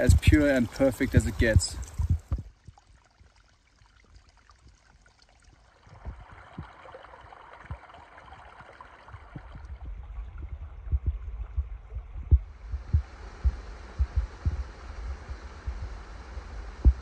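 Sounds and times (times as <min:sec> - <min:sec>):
water running over rocks: 0:00.0 - 0:11.5
low thumps: 0:01.6 - 0:02.5, 0:09.1 - 0:17.0.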